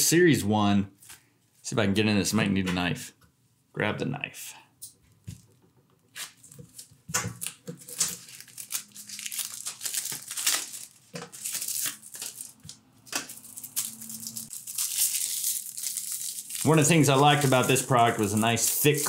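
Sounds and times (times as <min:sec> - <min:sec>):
wrapper crinkling and tearing: 0:06.2 - 0:19.0.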